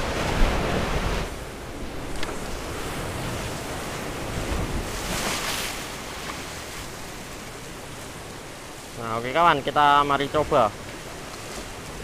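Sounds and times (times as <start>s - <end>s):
sea waves washing on shore: 0.0s - 12.0s.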